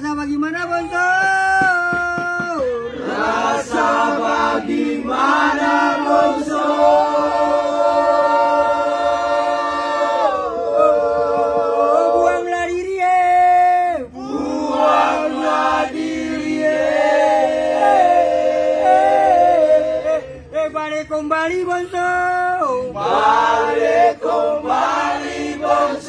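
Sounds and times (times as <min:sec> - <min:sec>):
men singing unaccompanied: 0:02.4 - 0:12.5, 0:14.2 - 0:20.2, 0:22.7 - 0:26.0.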